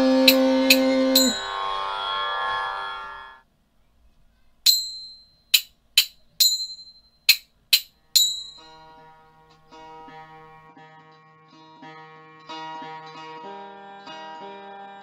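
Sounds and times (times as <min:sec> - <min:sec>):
plucked string instrument: 0:00.0 - 0:03.4, 0:08.1 - 0:15.0
high bell-like chime: 0:00.7 - 0:01.7, 0:04.7 - 0:05.5, 0:08.2 - 0:08.8.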